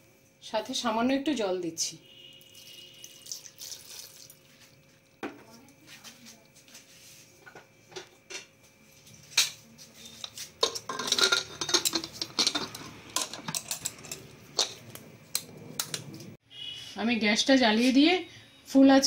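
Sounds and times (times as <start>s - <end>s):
metal lid clinking and scraping: 10.1s - 16.3s.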